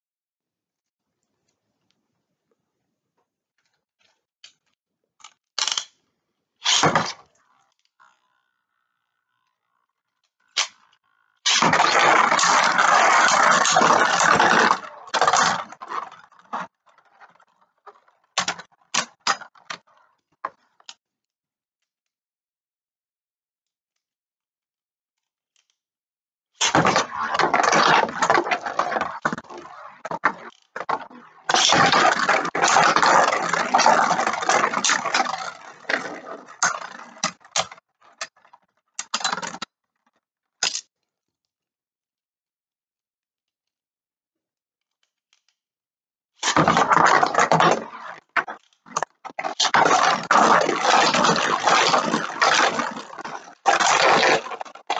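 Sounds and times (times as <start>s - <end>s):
spinning tops whirring and scraping: 26.6s - 37.7s.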